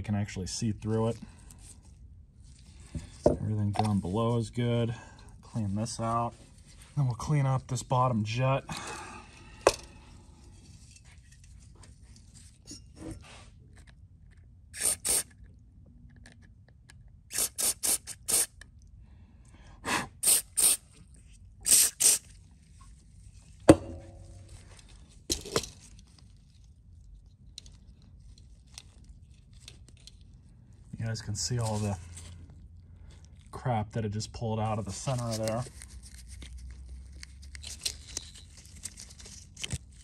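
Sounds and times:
aerosol spray squirts: 0:14.8 - 0:15.3, 0:17.3 - 0:18.6, 0:20.2 - 0:20.9, 0:21.6 - 0:22.3.

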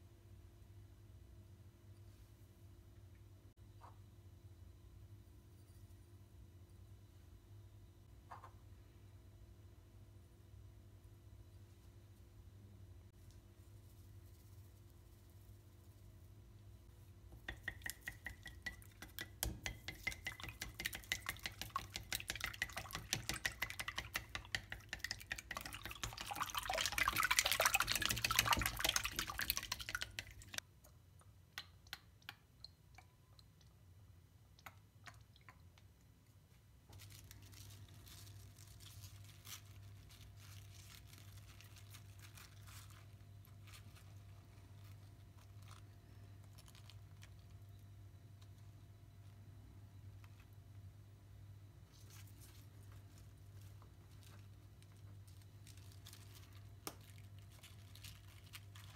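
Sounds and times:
chopsticks whisking eggs in glass bowl: 0:17.3 - 0:30.6.

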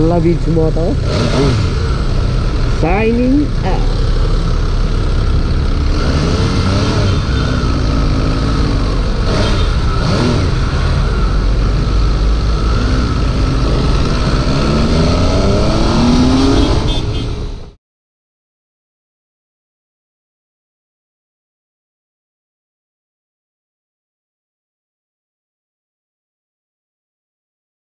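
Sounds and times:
loud riding rumble: 0:00.0 - 0:17.7
motorcycle engine revving: 0:00.0 - 0:17.7.

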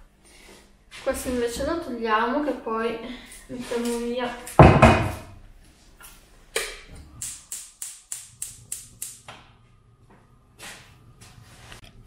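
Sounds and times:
sharp clicks: 0:06.6 - 0:09.3.

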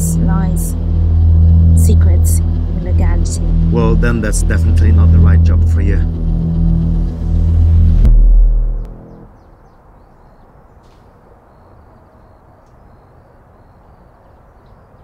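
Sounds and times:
deep low drone: 0:00.0 - 0:09.6.

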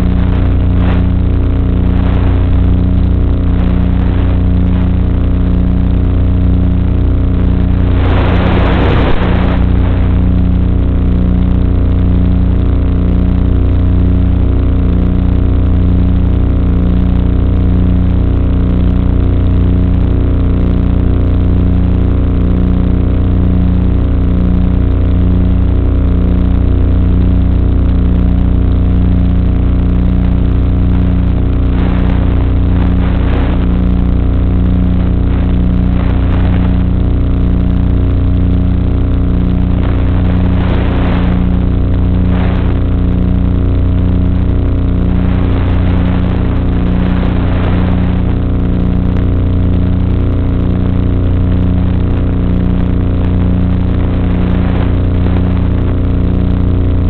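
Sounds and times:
hissy noise surges: 0:00.0 - 0:05.3, 0:07.0 - 0:11.4, 0:30.3 - 0:49.2.

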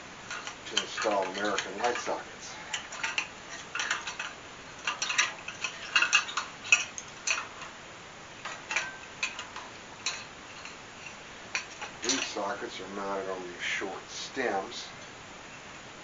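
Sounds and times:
pliers clinking on metal: 0:00.3 - 0:07.7, 0:08.4 - 0:12.4.

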